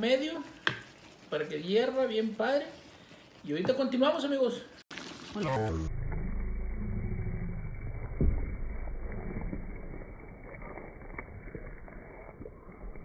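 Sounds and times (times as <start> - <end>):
wooden spoon stirring sauce: 0.0 - 4.6
low rumble: 5.5 - 13.0
thump: 8.2 - 8.7.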